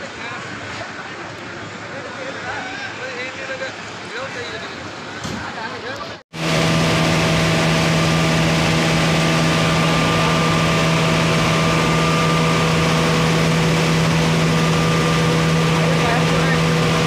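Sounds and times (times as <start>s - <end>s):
steady mechanical hum: 0.0s - 17.0s
constant rushing noise: 6.4s - 17.0s.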